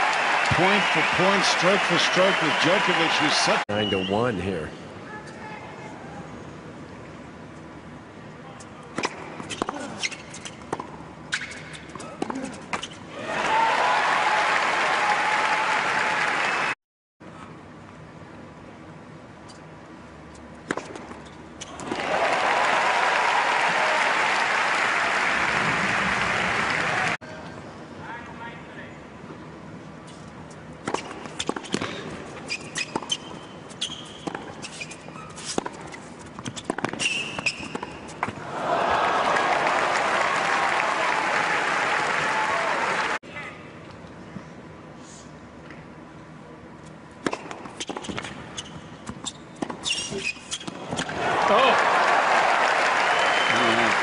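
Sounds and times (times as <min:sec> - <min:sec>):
crowd applauding: 0:00.0 - 0:03.7, 0:13.3 - 0:16.8, 0:21.9 - 0:27.2, 0:38.5 - 0:43.2, 0:51.2 - 0:54.0
shoe squeaks on hard court: 0:09.4 - 0:10.7, 0:11.3 - 0:13.1, 0:30.9 - 0:38.2, 0:47.8 - 0:50.8
tennis ball hit by racquets: 0:20.6 - 0:22.0, 0:34.1 - 0:38.4, 0:47.2 - 0:48.4.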